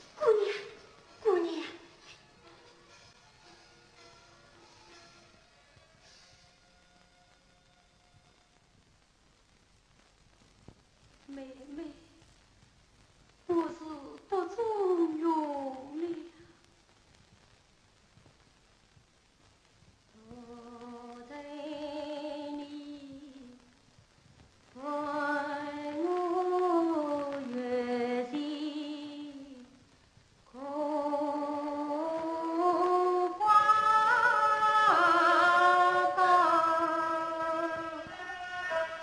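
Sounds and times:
woman singing opera: 0:00.2 - 0:01.9, 0:13.5 - 0:16.4, 0:20.2 - 0:23.7, 0:24.8 - 0:29.8, 0:30.5 - 0:39.0.

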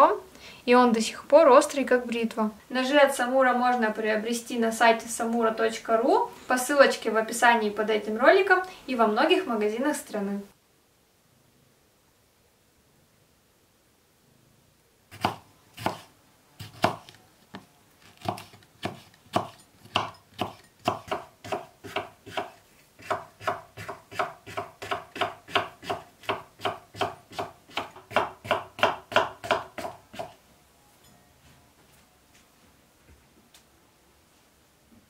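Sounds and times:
knife chopping on wooden board: 0:15.2 - 0:17.2, 0:18.2 - 0:30.4.

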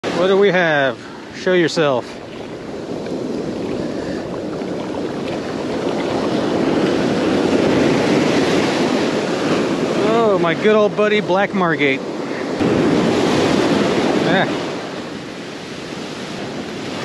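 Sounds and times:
ocean surf washing up: 0:00.0 - 0:17.0
wave breaking: 0:00.0 - 0:17.0
wind buffeting microphone: 0:00.0 - 0:17.0.

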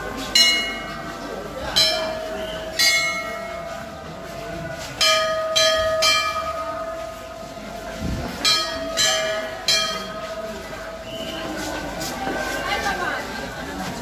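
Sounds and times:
bells struck by hand: 0:00.3 - 0:04.0, 0:05.0 - 0:07.5, 0:08.3 - 0:10.8.

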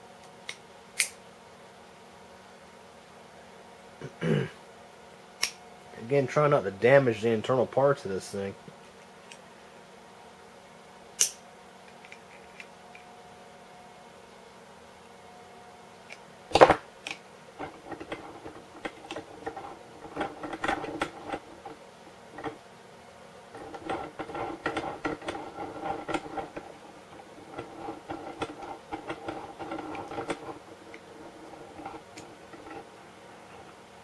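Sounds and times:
rapid clicking and scraping: 0:16.5 - 0:22.6, 0:23.5 - 0:33.8.

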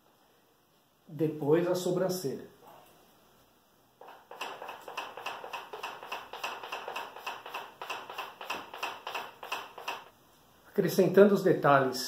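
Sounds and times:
chalk scratching on chalkboard: 0:04.0 - 0:10.1.

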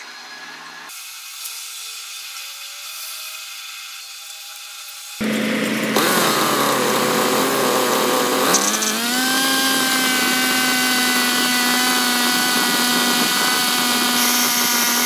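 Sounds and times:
generator whining buzz: 0:05.2 - 0:15.0
small petrol engine revving: 0:05.2 - 0:15.0.

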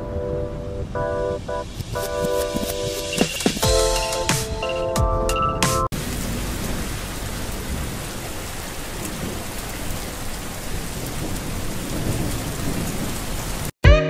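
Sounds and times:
heavy rain hissing: 0:05.9 - 0:13.7.

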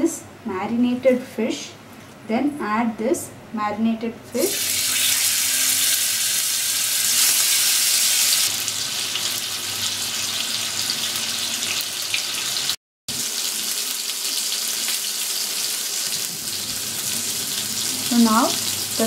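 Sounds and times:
fish sizzling in hot oil: 0:04.5 - 0:19.0.

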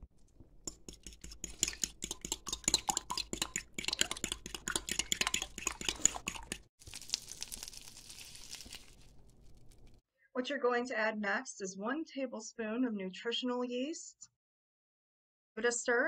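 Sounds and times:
fork whisking eggs in bowl: 0:00.2 - 0:06.7
butter sizzling in frying pan: 0:06.8 - 0:09.8.

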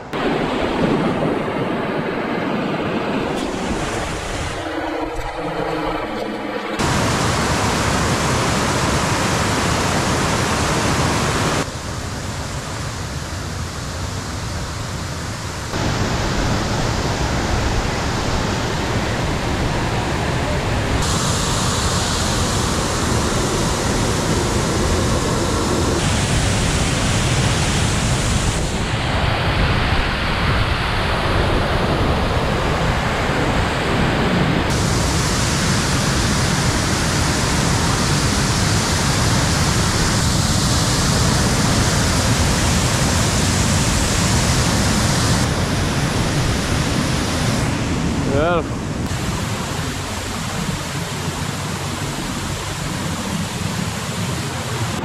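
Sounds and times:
waterfall rushing into a pool: 0:06.8 - 0:11.7, 0:34.7 - 0:47.7, 0:48.3 - 0:55.0.

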